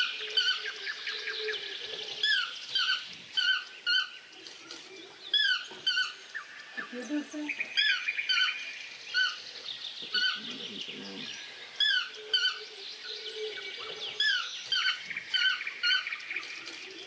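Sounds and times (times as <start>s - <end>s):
faint forest chatter: 0.0s - 17.0s
toucan yelping calls: 11.8s - 12.7s.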